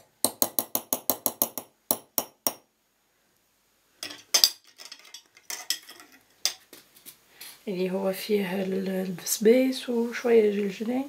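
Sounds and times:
spoon tapping glass jar: 0:00.3 - 0:02.6
tableware clinking: 0:04.0 - 0:06.6.

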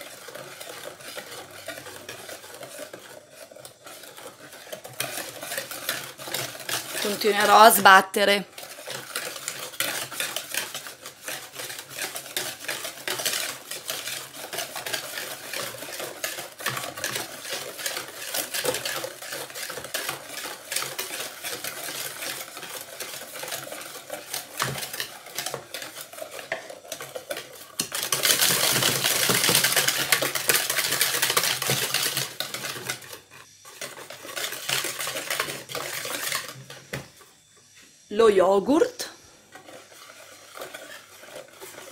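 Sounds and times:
wire whisk beating in plastic bowl: 0:00.0 - 0:33.2.

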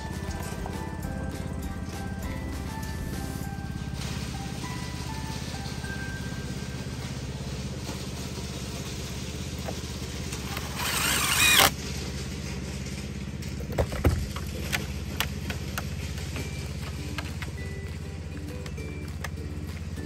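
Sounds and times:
low mechanical hum: 0:00.0 - 0:20.0
power drill whining: 0:10.3 - 0:11.8.

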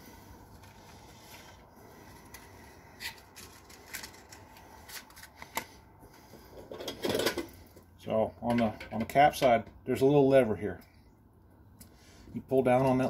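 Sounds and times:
rustles and clicks of handling: 0:00.3 - 0:09.8.

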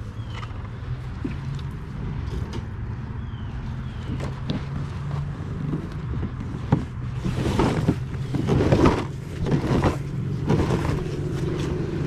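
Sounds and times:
kayak hull scraping through grass: 0:07.0 - 0:11.8.

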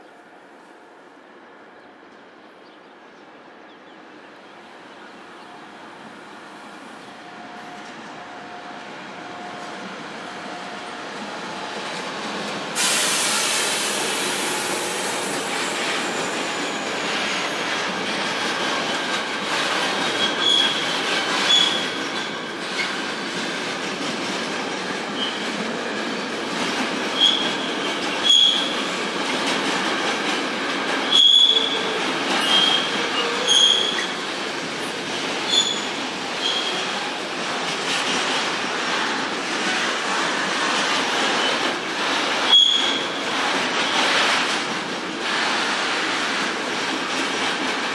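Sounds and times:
freight train rumbling clatter: 0:09.2 - 0:47.9
train wheels squealing: 0:12.8 - 0:17.8, 0:18.7 - 0:22.9, 0:25.2 - 0:25.4, 0:27.2 - 0:28.8, 0:31.0 - 0:34.2, 0:35.5 - 0:37.0, 0:42.5 - 0:43.2.

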